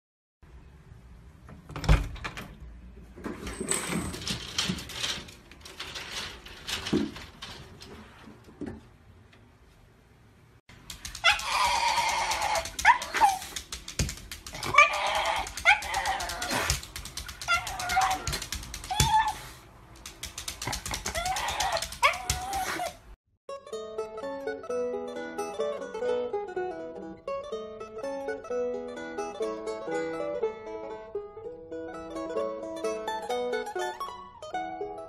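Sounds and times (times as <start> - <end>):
rustling: 3.2 - 8.6
dog whining: 11.1 - 13.6, 14.5 - 19.6, 20.8 - 23.1.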